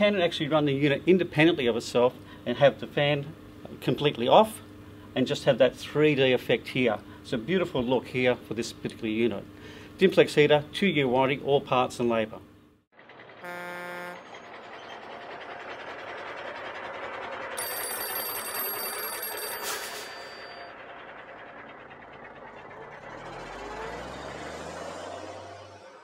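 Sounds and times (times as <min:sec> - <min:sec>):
truck driving: 0:11.6 - 0:26.0
low engine hum: 0:12.4 - 0:19.2, 0:20.1 - 0:26.0
horn honk: 0:13.4 - 0:14.4
old telephone bell ringing: 0:17.6 - 0:21.1.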